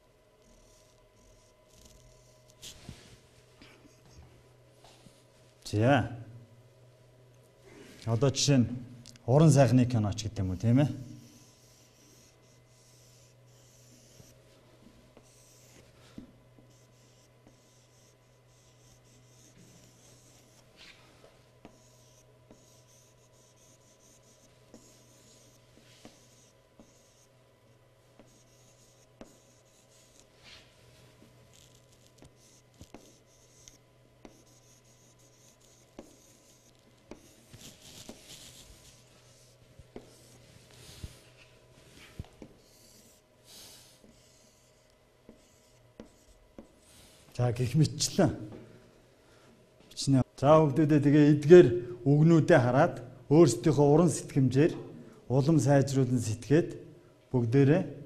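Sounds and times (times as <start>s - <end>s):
chalk scratching on chalkboard: 10.4s - 14.5s, 15.2s - 16.0s, 16.6s - 21.0s, 21.6s - 27.3s, 28.2s - 30.7s, 31.5s - 47.3s.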